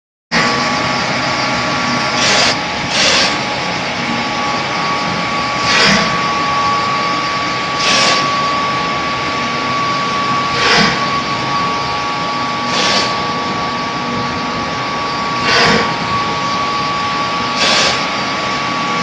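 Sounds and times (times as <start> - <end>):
machinery drone: 0.3 - 19.0
thin constant whine: 0.4 - 19.0.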